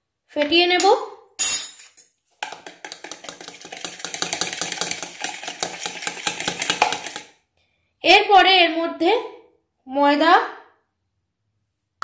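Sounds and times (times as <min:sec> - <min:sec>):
fork tapping and scraping bowl: 0:02.4 - 0:07.4.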